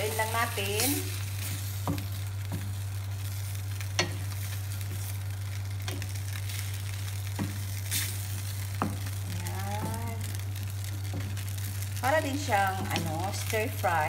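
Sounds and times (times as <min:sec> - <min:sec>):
low hum: 0:00.0 - 0:14.0
sauce boiling: 0:00.0 - 0:14.0
stir-fry sizzling in a pan: 0:00.0 - 0:14.0
spatula tapping a pan: 0:08.7 - 0:09.1.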